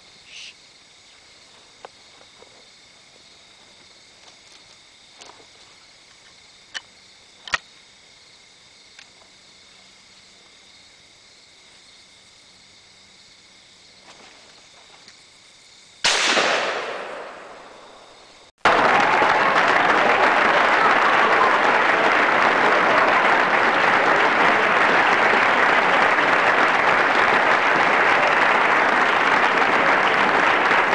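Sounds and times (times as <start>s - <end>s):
shotgun shot echoing: 16.0s - 18.1s
canned applause: 18.6s - 30.9s.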